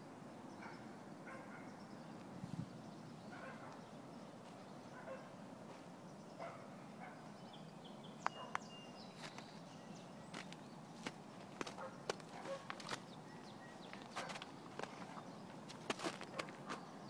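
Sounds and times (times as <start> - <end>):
faint bird chirps: 6.1 - 11.0.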